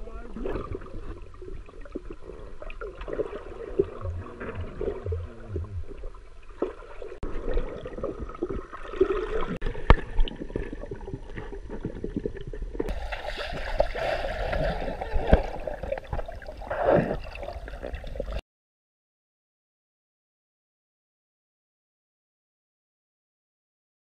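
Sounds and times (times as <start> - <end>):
underwater bubbling and gurgling: 0.0 - 18.4.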